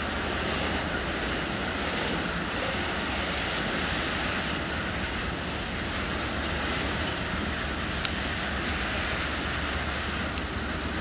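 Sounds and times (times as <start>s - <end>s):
diesel locomotive rumble: 0.0s - 11.0s
hiss of wheel and air noise: 0.0s - 11.0s.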